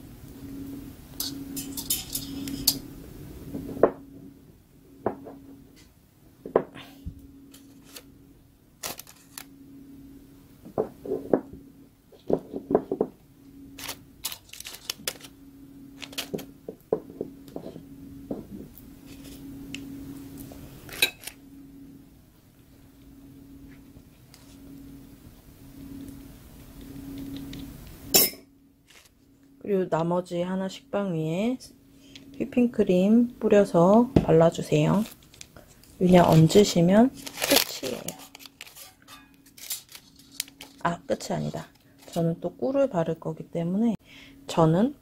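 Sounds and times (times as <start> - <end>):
faint hum: 0.0 - 45.0
paper rustling: 8.8 - 9.4, 13.8 - 15.3, 28.9 - 29.2, 35.0 - 42.3.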